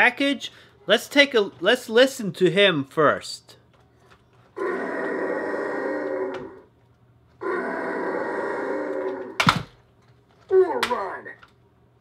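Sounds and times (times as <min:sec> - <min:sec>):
toy growling roar: 0:04.6 - 0:06.7, 0:07.4 - 0:09.4.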